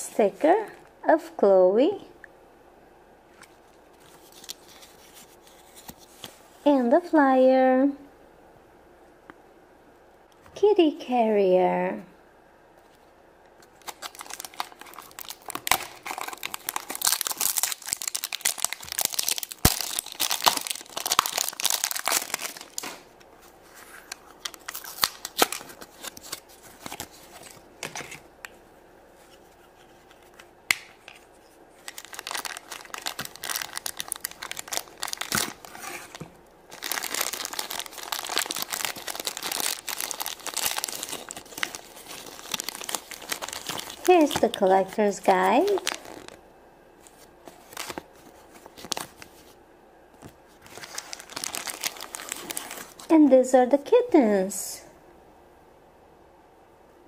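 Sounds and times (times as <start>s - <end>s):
plastic packaging tearing and crinkling: 4.0s - 6.4s, 13.6s - 28.2s, 31.8s - 46.4s, 47.1s - 49.5s, 50.6s - 53.1s
foil bag rustling: 13.7s - 28.1s, 31.7s - 46.4s, 47.0s - 49.6s, 50.5s - 53.1s.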